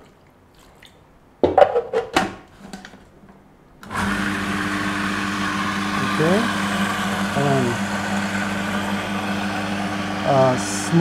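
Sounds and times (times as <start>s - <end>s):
food processor motor humming: 3.8s - 11.0s.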